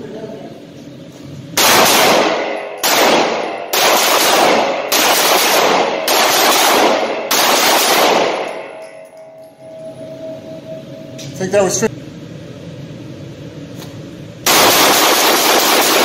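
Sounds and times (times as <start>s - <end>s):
pistol shots echoing indoors: 1.6s - 9.4s, 14.4s - 16.0s.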